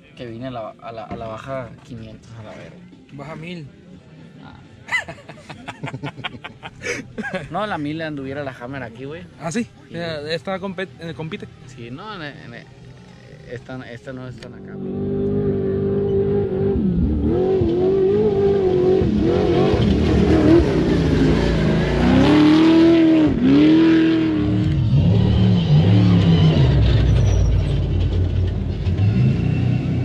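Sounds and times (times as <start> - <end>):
off-road vehicles passing at speed: 11.8 - 30.0
engines revving: 14.4 - 30.0.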